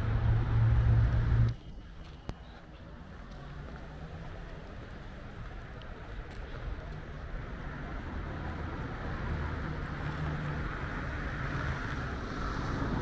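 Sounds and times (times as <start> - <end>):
low rumble of traffic: 0.0 - 13.0.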